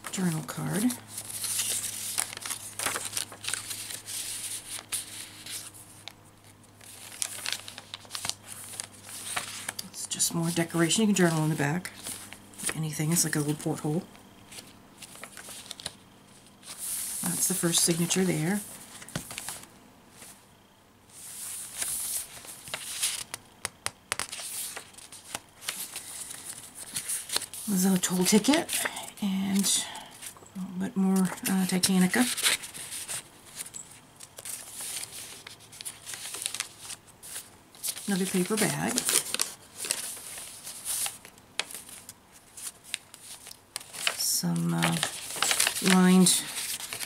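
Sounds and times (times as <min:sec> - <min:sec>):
paper rustling and crinkling: 0:00.0 - 0:20.4, 0:21.1 - 0:23.5, 0:24.1 - 0:30.5, 0:31.1 - 0:47.0
page turning: 0:00.3 - 0:09.9, 0:11.2 - 0:13.6, 0:14.5 - 0:20.3, 0:21.2 - 0:29.0, 0:31.2 - 0:47.0.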